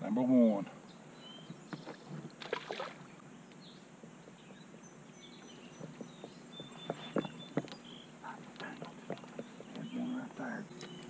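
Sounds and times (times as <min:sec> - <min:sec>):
faint high bird chirps: 0:04.5 - 0:08.4, 0:09.4 - 0:11.0.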